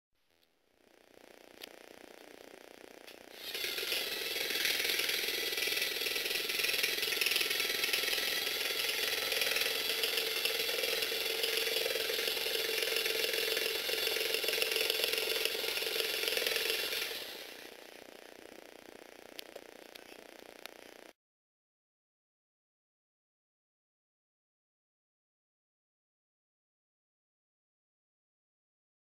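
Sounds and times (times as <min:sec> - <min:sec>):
toy robot motor whirring: 0:00.8 - 0:21.2.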